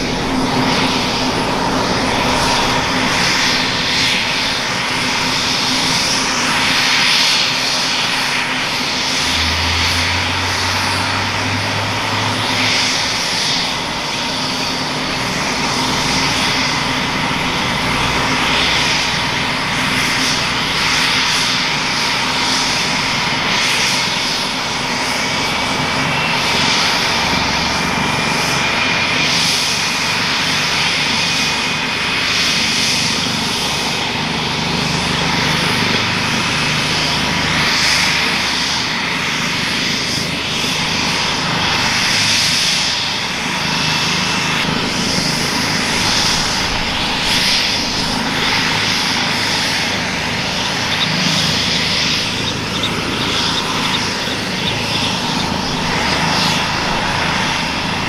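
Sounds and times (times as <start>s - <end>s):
faint whine climbing in pitch: 0.0s - 58.0s
helicopter turbine engines whining: 0.0s - 58.0s
rotor rushing noise: 33.2s - 58.0s.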